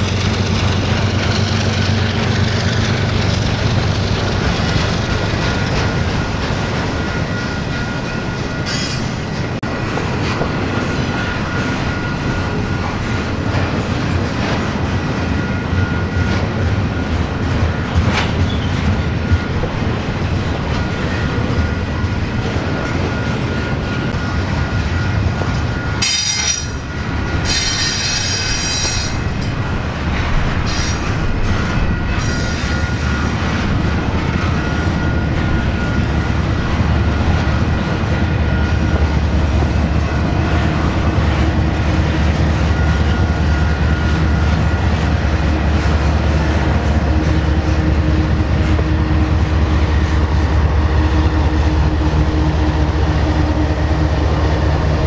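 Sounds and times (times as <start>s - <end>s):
train wheels rumbling and clattering: 0.0s - 55.0s
high-pitched wheel squeal: 25.8s - 29.6s, 30.6s - 33.4s.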